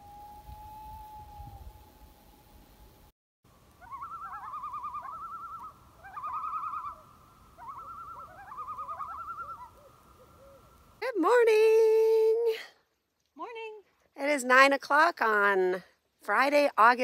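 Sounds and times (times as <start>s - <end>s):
loon tremolo call: 3.8s - 10.8s.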